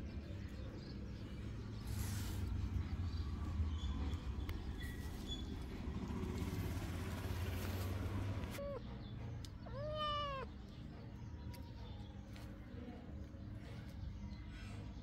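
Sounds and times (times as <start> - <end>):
cat meowing: 9.6 - 10.6.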